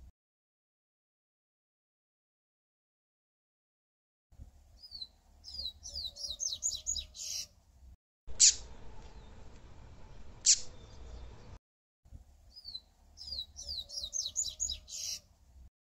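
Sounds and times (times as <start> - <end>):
bird singing high notes: 12.7 - 15.2.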